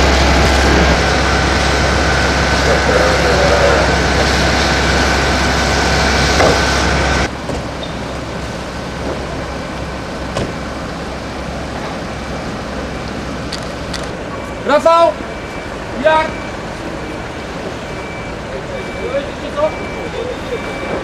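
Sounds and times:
quieter steady rumble: 0:00.0 - 0:14.4
engine with high whine: 0:00.0 - 0:21.0.

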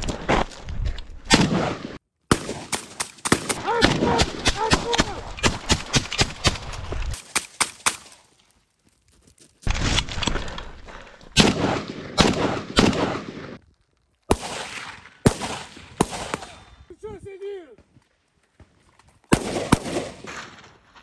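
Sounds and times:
assault rifle gunshots: 0:01.3 - 0:08.1, 0:11.4 - 0:13.6, 0:14.3 - 0:16.5, 0:19.3 - 0:20.6.

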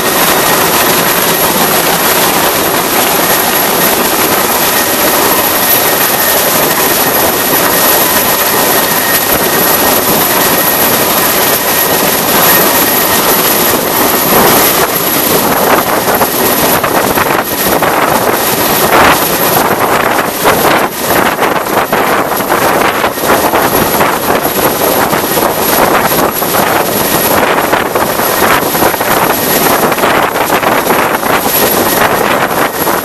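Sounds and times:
helicopter rotor and engine noise: 0:00.0 - 0:33.0
rotor downwash buffeting microphone: 0:00.0 - 0:33.0
thin high whine: 0:00.0 - 0:33.0.

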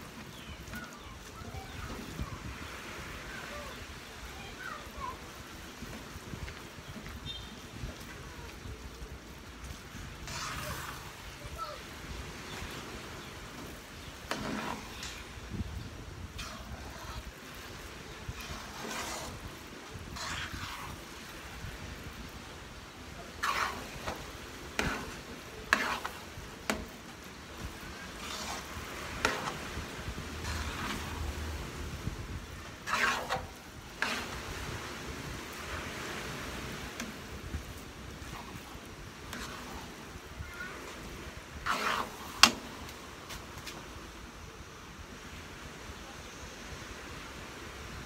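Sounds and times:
low sizzle of cooking: 0:00.0 - 0:48.0
metal spoon scraping a pan: 0:10.2 - 0:11.2, 0:14.1 - 0:15.4, 0:16.3 - 0:21.4, 0:23.3 - 0:31.6, 0:32.7 - 0:34.7, 0:38.2 - 0:40.0, 0:41.6 - 0:42.8.

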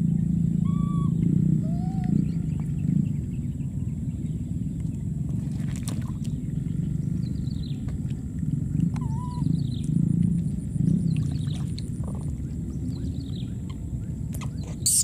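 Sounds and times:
steady low rumble: 0:00.0 - 0:15.0
baby monkey coo calls: 0:00.6 - 0:02.3, 0:09.0 - 0:09.5, 0:14.4 - 0:15.0.

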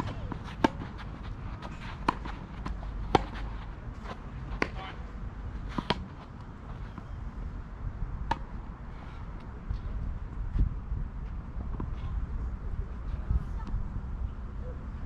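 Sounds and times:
tennis ball struck and bouncing: 0:00.0 - 0:05.0, 0:05.6 - 0:07.1, 0:08.2 - 0:08.6
low steady rumble: 0:00.0 - 0:15.0.

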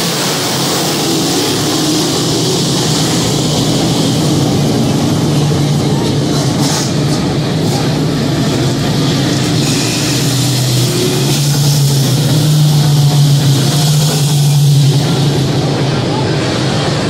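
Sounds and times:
race car engines droning: 0:00.0 - 0:17.0.

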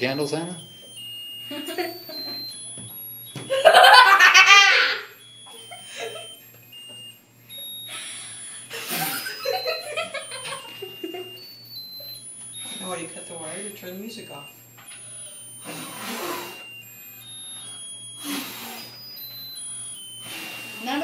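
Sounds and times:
electronic beeping tune: 0:00.0 - 0:04.2, 0:05.0 - 0:21.0
girl laughing: 0:01.5 - 0:02.4, 0:03.5 - 0:06.4, 0:07.9 - 0:11.4.

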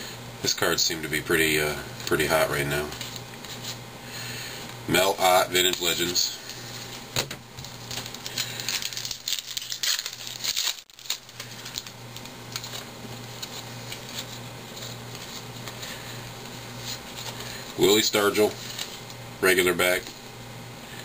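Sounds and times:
low steady hum: 0:00.0 - 0:21.0
cards clicking and rustling: 0:07.2 - 0:19.2.

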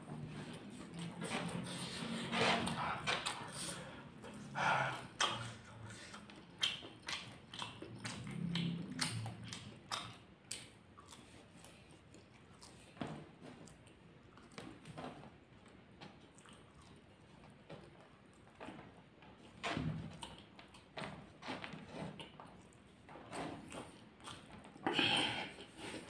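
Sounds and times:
wet chewing: 0:00.4 - 0:15.0, 0:15.6 - 0:26.0
lip smacks: 0:03.1 - 0:12.9.

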